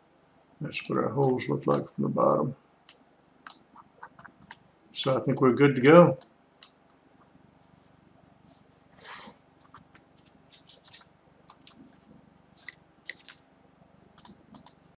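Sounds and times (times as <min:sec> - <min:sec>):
computer mouse clicks: 0:02.9 - 0:05.5, 0:09.7 - 0:12.0, 0:12.6 - 0:13.4, 0:14.2 - 0:14.9.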